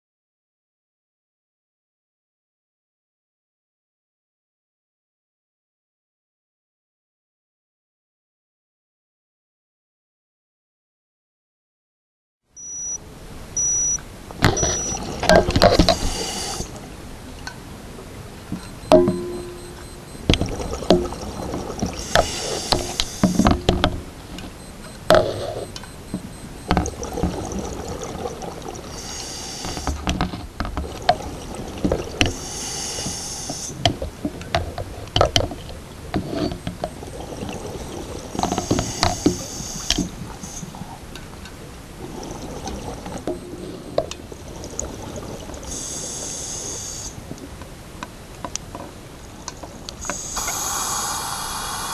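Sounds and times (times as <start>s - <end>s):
underwater air bubbles rushing: 18.8s - 23.8s, 25.1s - 29.0s, 30.8s - 32.4s, 36.8s - 39.0s, 42.0s - 46.0s.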